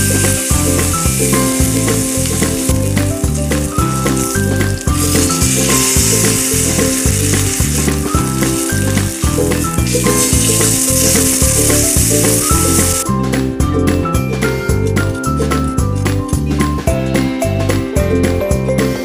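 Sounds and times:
steak sizzling in oil: 0.0 - 13.0
background music with steady beat: 0.0 - 19.0.

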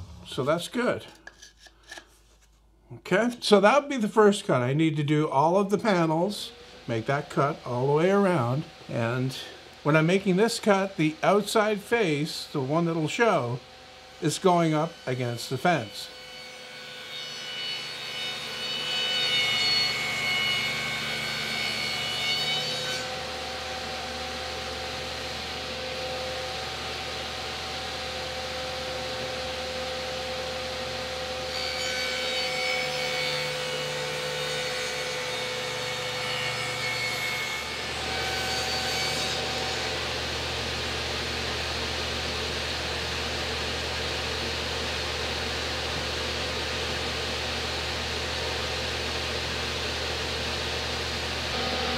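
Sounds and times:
table saw motor hum: 0.0 - 0.6, 13.9 - 51.9
saw blade cutting whine: 0.0 - 2.0, 14.2 - 34.3, 35.0 - 51.9.

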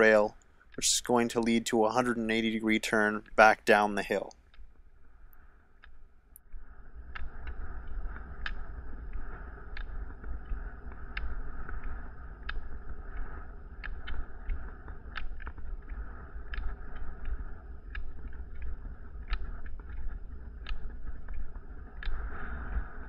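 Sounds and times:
ski pole tips clicking on asphalt: 5.8 - 23.0.

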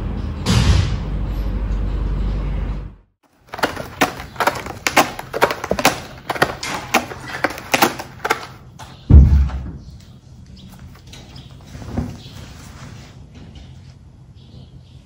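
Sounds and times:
cat scratching cardboard: 3.4 - 8.6.

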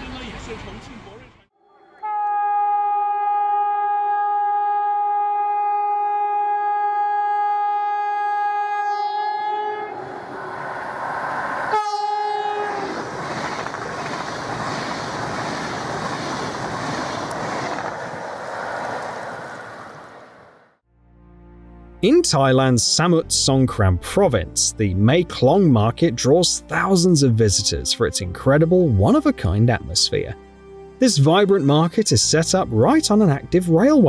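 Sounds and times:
train horn blasts: 1.9 - 13.1
train rushing past: 9.8 - 20.8.

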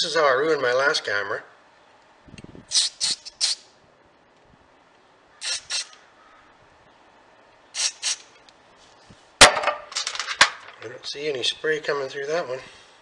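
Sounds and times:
aerosol spray hisses: 2.7 - 3.6, 5.4 - 6.0, 7.8 - 8.2.

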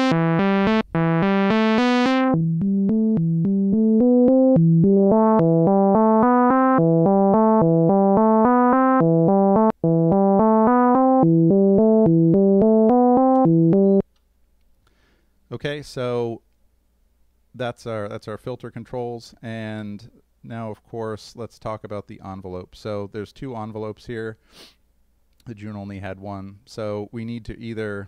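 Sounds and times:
buzzy synthesizer sequence: 0.0 - 14.0.

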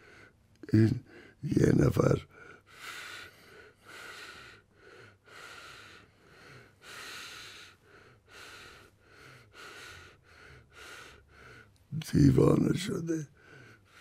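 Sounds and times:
man breathing quickly: 0.0 - 0.4, 1.0 - 1.4, 2.3 - 11.9, 13.3 - 14.0.

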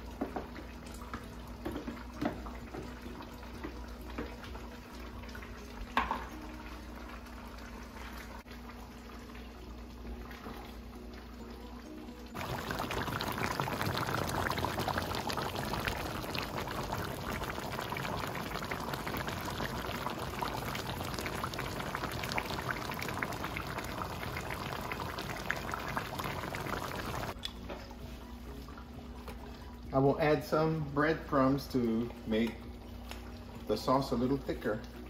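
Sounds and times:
stew bubbling in a pan: 0.0 - 27.4.

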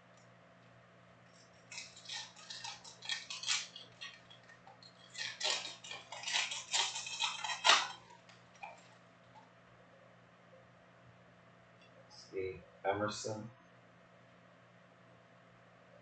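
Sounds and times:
foil wrapper crinkling and tearing: 1.3 - 9.4.

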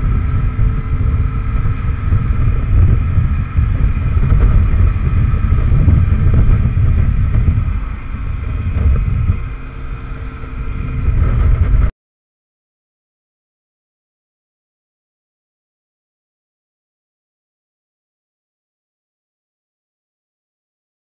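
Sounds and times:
motorcycle engine running: 0.0 - 11.9
wind buffeting microphone: 0.0 - 11.9.

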